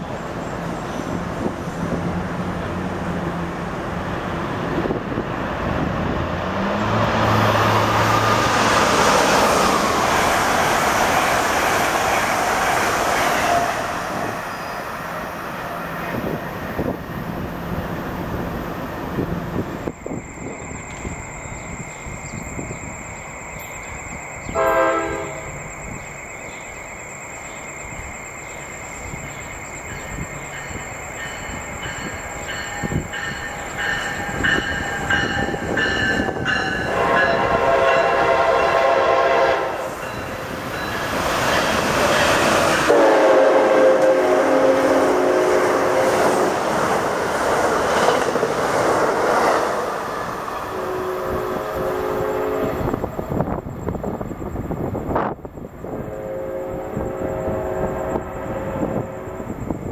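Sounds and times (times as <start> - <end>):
rush of passing train: 0.0 - 59.9
train air horn blasts: 24.5 - 25.6, 35.4 - 40.0, 42.8 - 46.6, 50.6 - 53.0, 55.9 - 59.6.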